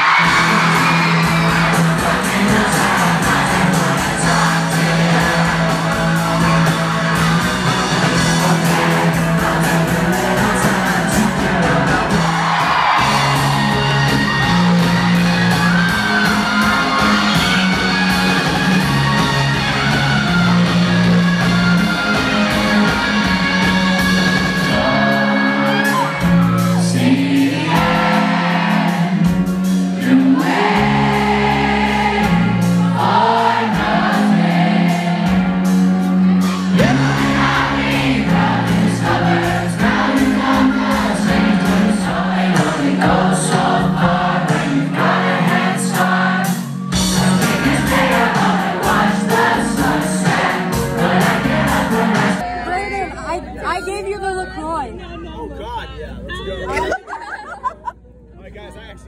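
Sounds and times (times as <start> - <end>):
crowd whooping and singing along: 0.0 - 55.0
live rock band playing: 0.0 - 55.0
person singing: 36.7 - 46.2.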